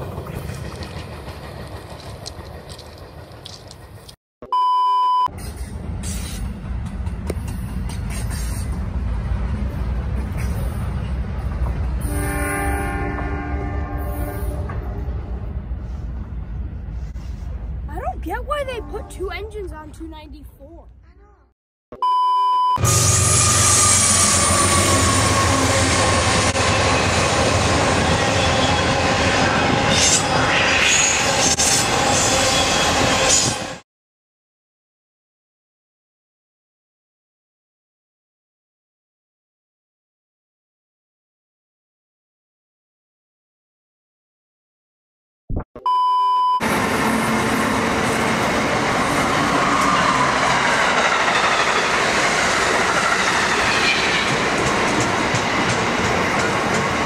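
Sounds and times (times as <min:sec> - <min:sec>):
train wheels rumbling on rails: 0:00.0 - 0:04.2, 0:05.4 - 0:12.2, 0:22.8 - 0:33.8, 0:46.6 - 0:57.0
wheels clattering on rails: 0:00.0 - 0:04.2, 0:46.7 - 0:57.0
locomotive horn chord: 0:12.0 - 0:15.0
high-pitched wheel squeal: 0:22.8 - 0:33.8.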